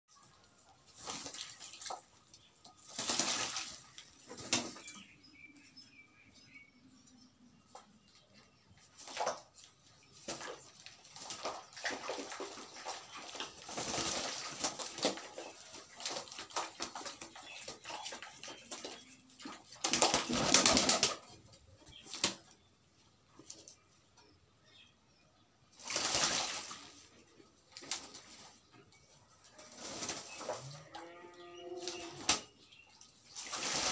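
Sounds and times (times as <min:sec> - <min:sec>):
pigeons splashing in water: 0:00.2 - 0:05.0, 0:08.8 - 0:22.6, 0:25.7 - 0:28.7, 0:29.7 - 0:30.6, 0:31.8 - 0:33.9.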